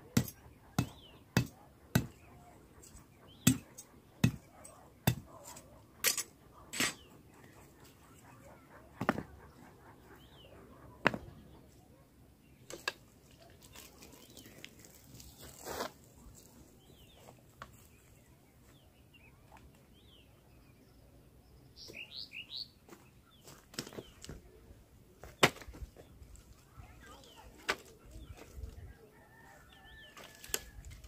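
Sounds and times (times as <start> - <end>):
small birds chirping faintly: 0.0 - 31.0
hatchet knocking stone: 0.2 - 2.1
stones striking stone: 11.0 - 11.3.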